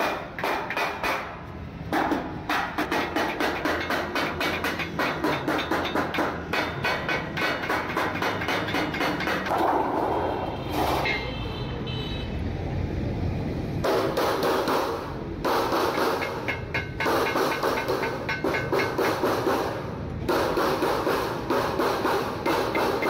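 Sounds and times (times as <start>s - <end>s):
mallet striking steel sheet: 0.0s - 10.1s, 13.9s - 23.0s
passing vehicle rumble: 6.2s - 22.7s.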